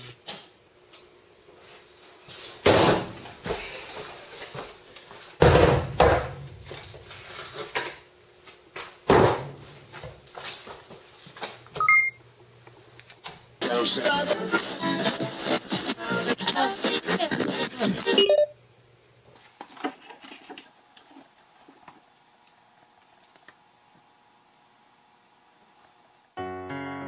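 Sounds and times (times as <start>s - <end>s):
skateboard thumps on workbench: 5.4s - 6.4s, 9.1s - 9.6s
short high beeps: 11.8s - 12.2s.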